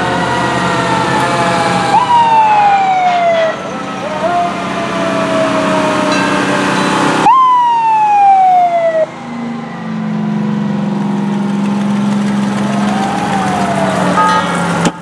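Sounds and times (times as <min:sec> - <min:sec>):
fire truck siren: 0:00.0 - 0:15.0
truck engine running: 0:00.0 - 0:15.0.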